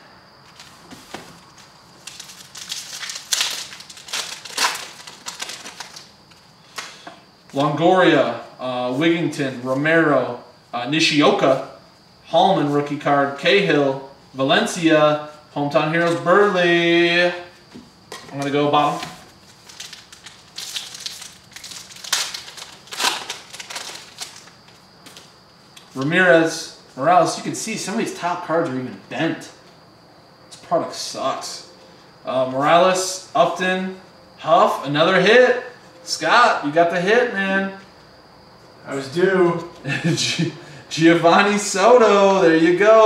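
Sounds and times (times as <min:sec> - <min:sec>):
wrapper tearing and crinkling: 0:02.0 - 0:06.1, 0:19.5 - 0:24.5.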